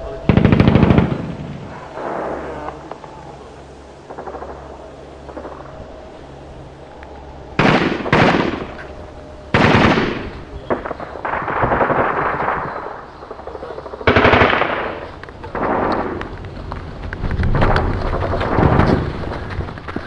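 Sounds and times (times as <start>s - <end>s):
automatic gunfire bursts: 9.5s - 13.0s, 13.9s - 16.2s.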